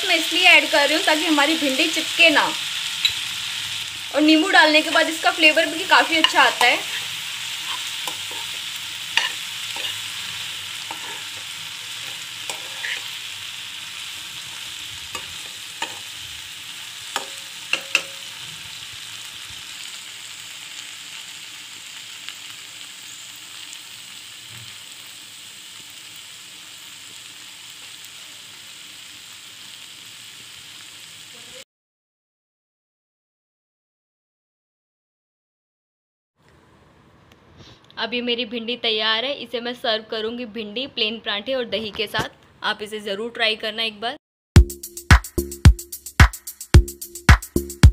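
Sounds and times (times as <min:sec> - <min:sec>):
okra sizzling in oil: 0:00.0 - 0:31.6.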